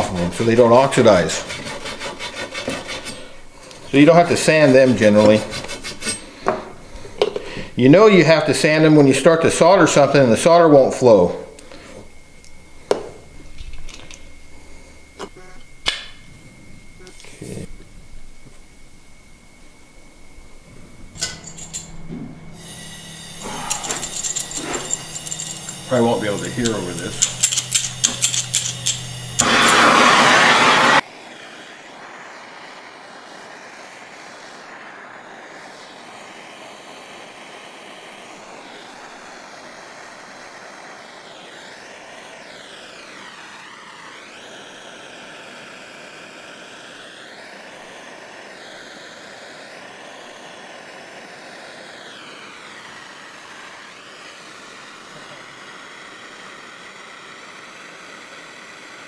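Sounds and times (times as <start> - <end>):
torch flame rushing hiss: 0.0 - 59.0
flint striker: 23.4 - 29.9.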